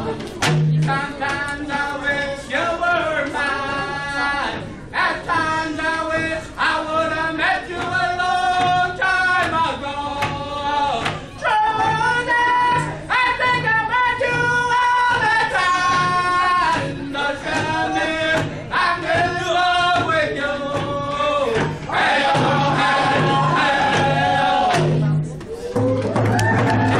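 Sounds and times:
group singing together: 0:00.8 - 0:25.1
hand drum beat: 0:05.4 - 0:26.9.

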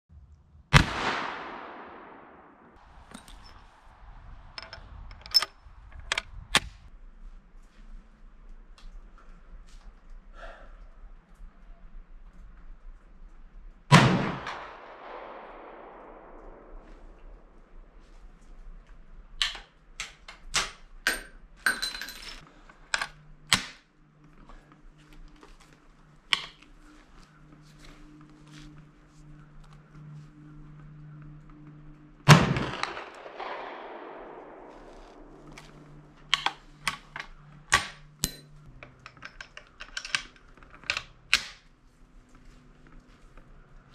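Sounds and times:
gunshot echo: 0:00.7 - 0:02.8, 0:13.9 - 0:16.9, 0:32.3 - 0:35.4
rifle breech metallic clicks: 0:04.5 - 0:06.9, 0:22.4 - 0:23.8, 0:32.6 - 0:41.7.

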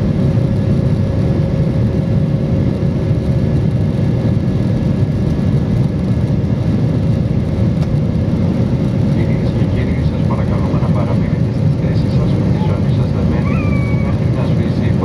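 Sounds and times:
jet engines droning: 0:00.0 - 0:15.0.

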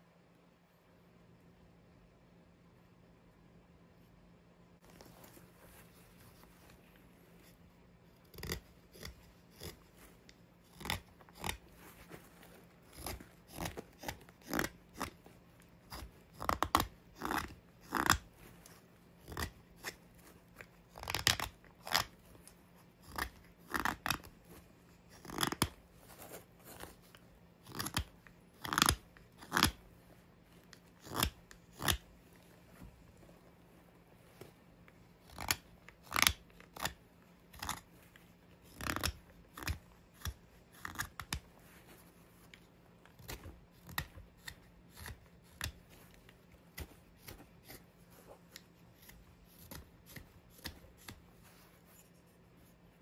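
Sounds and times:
knife slicing wood shavings: 0:10.7 - 0:12.1, 0:12.8 - 0:15.2, 0:43.2 - 0:45.9.

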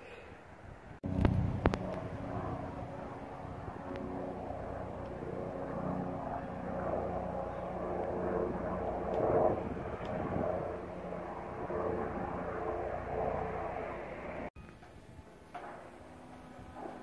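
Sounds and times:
helicopter flying overhead: 0:01.0 - 0:17.0.

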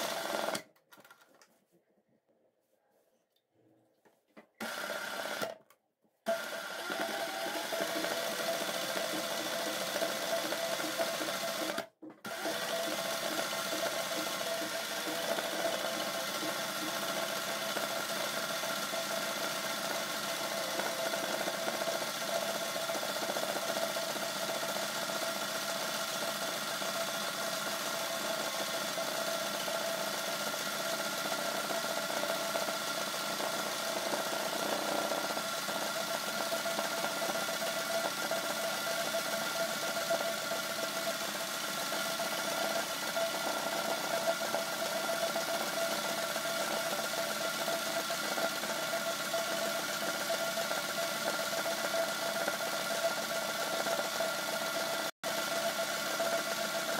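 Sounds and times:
sewing machine running: 0:00.0 - 0:00.6, 0:04.6 - 0:05.6, 0:06.3 - 0:56.9.

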